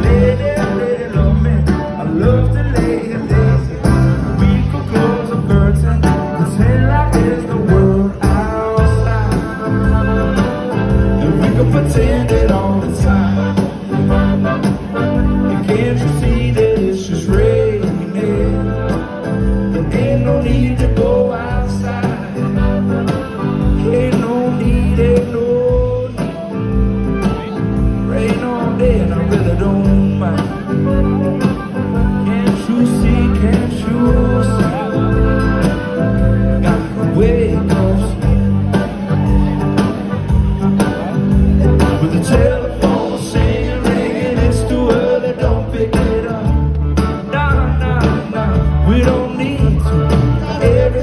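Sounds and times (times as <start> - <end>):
man singing: 0.0 - 39.1, 40.7 - 51.0
acoustic guitar: 0.0 - 51.0
live band music over pa: 0.0 - 51.0.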